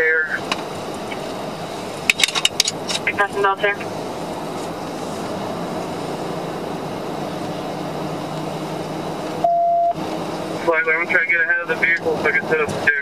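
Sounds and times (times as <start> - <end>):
road and engine noise in car: 0.0 - 13.0
short loud beep: 9.4 - 10.0.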